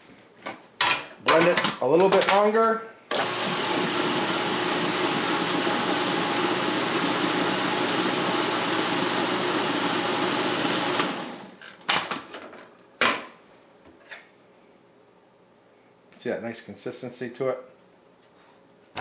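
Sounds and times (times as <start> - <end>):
food processor motor running: 3.1 - 11.6.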